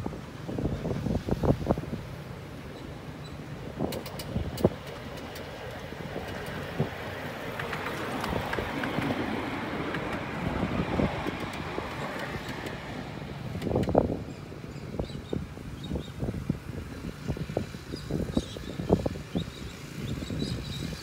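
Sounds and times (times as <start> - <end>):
wind on microphone: 0.0 - 21.0
wheels clicking on track: 1.5 - 14.9
miniature train running: 3.9 - 14.0.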